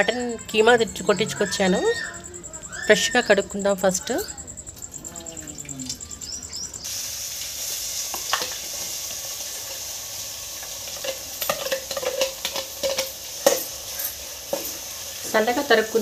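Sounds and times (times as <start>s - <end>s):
hot oil sizzling in a pot: 6.8s - 16.0s.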